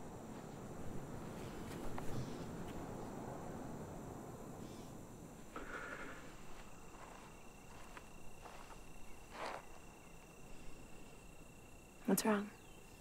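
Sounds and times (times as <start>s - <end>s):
cricket trill: 0.0s - 13.0s
soft rustles: 5.6s - 9.9s.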